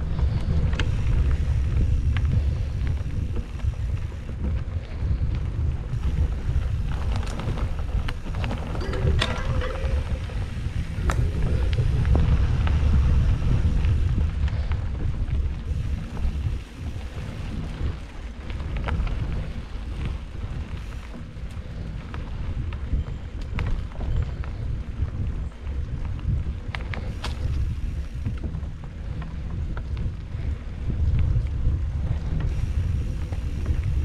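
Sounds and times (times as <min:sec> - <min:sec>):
bike rolling on dirt trail: 0:00.0 - 0:34.0
wind buffeting microphone: 0:00.0 - 0:34.0
clicks and rattles: 0:08.4 - 0:10.4.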